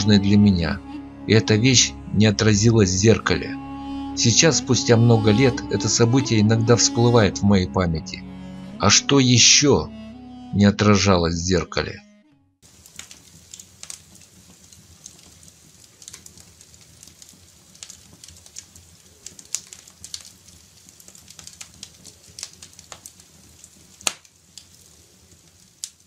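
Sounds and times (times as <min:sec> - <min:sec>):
wood fire crackling: 0:12.6 - 0:26.0.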